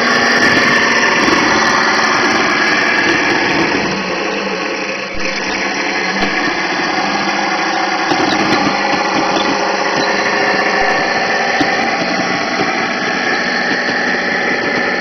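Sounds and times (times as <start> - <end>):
toy tank drive whirring: 0.0 - 15.0
track links clicking: 8.0 - 15.0.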